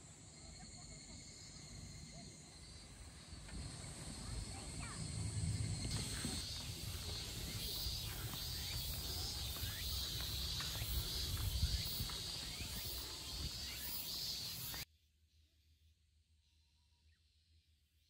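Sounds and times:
insects trilling in pulses: 0.0s - 14.8s
low rumble: 3.6s - 7.5s.

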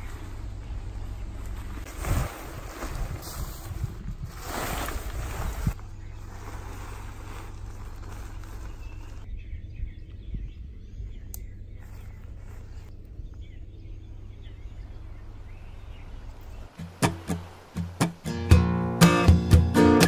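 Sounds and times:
low hum: 5.2s - 19.0s.

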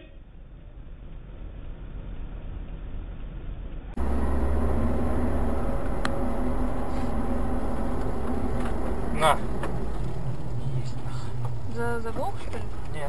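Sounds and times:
car engine drone: 0.4s - 13.0s
tyre hiss on wet road: 4.0s - 11.7s.

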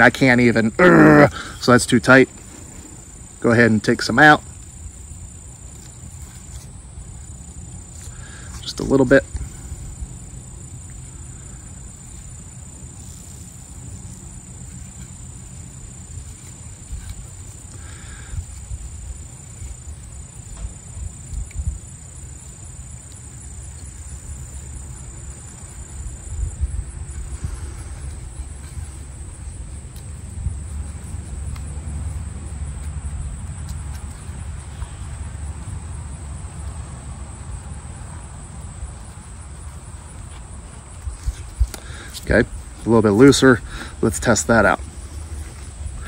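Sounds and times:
insects trilling: 0.0s - 46.0s
wind rumble on microphone: 20.5s - 22.2s, 25.6s - 34.0s.

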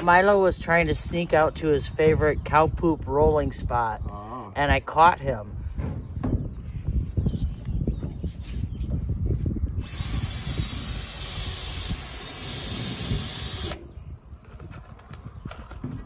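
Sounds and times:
wind rumble on microphone: 0.0s - 16.0s
cordless drill whirring: 9.8s - 13.9s.

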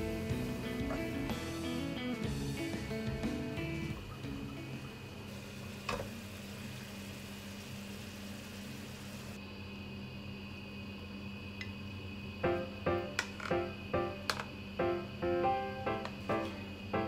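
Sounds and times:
food sizzling in a frying pan: 0.0s - 2.8s, 3.6s - 9.4s
low mechanical motor hum: 0.0s - 17.0s.

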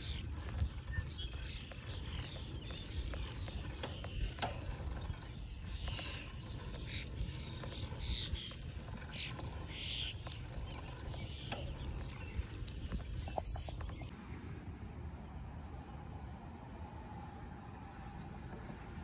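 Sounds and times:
birds chirping: 0.0s - 14.1s
wind rumbling on microphone: 0.0s - 14.1s.

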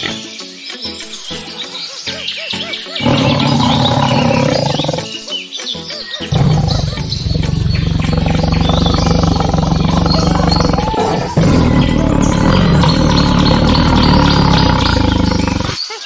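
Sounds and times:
background music with steady beat: 0.0s - 15.8s
lion roaring: 3.0s - 5.2s, 6.3s - 15.8s.

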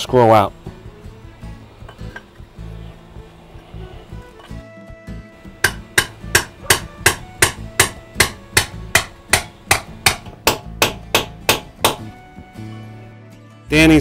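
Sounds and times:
rapid hammer blows: 5.4s - 12.3s.

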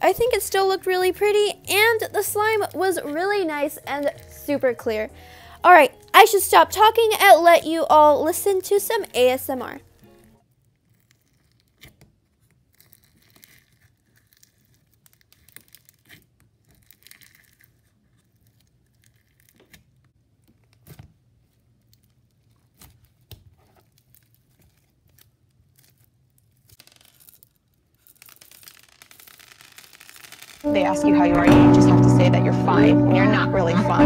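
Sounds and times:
slime squished crackling: 0.0s - 10.2s, 10.8s - 20.0s, 20.6s - 30.7s
beads pouring rattle: 26.8s - 30.7s.

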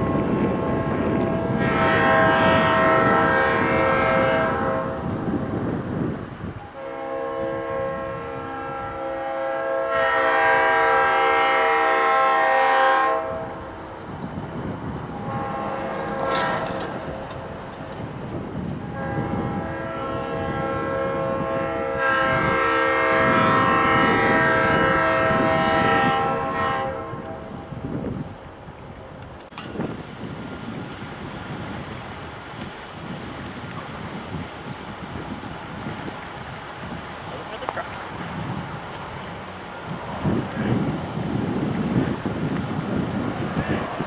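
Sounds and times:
locomotive horn blasts: 0.0s - 5.2s, 6.7s - 13.7s, 15.1s - 17.6s, 18.8s - 27.7s, 42.8s - 44.0s.

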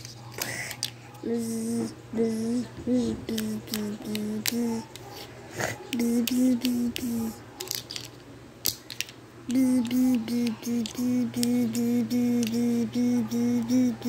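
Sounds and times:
person humming short notes: 1.3s - 4.8s, 9.5s - 14.0s
plastic letters clicking on table: 3.3s - 5.0s.

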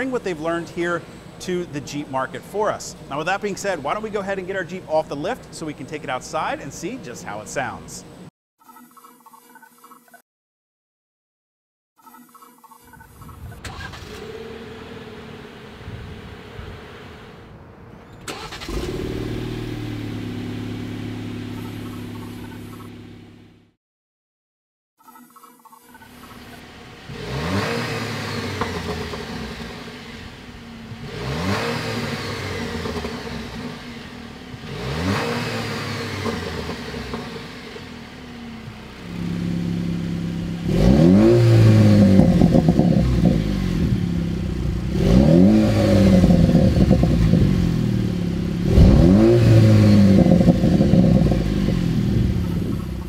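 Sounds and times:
car engine revving: 13.6s - 23.8s, 26.1s - 53.0s.

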